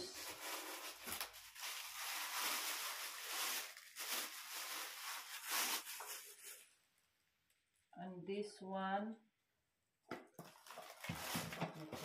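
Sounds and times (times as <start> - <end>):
plastic packaging crinkling: 0.0 - 6.8, 10.4 - 12.0.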